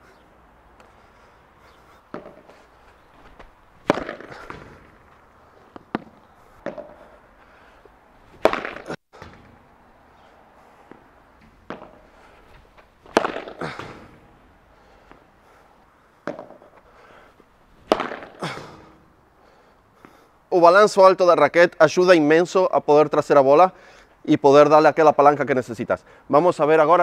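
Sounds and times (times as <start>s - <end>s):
racket hitting ball pops: 2.1s - 2.6s, 3.3s - 5.1s, 5.7s - 7.1s, 8.3s - 9.8s, 10.8s - 14.4s, 16.2s - 16.9s, 17.8s - 19.0s
soft ball knocks: 3.2s - 5.0s, 10.9s - 12.2s.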